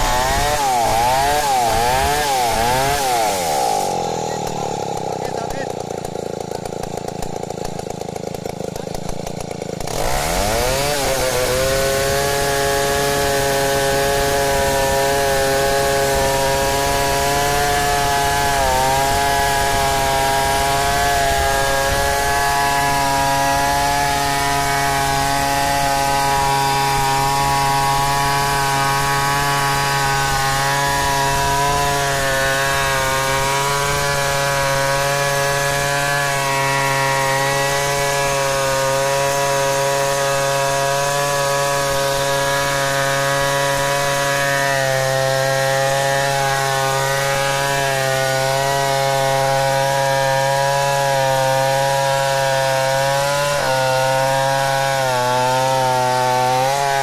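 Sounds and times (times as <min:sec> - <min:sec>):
chainsaw cutting timber: 0:00.0 - 0:57.0.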